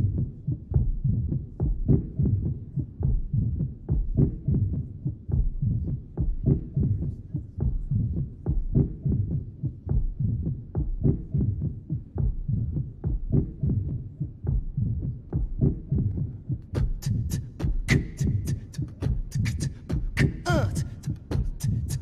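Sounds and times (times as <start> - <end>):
deep thumping pulse: 0.0 - 7.0, 7.6 - 22.0
beatboxing: 13.3 - 22.0.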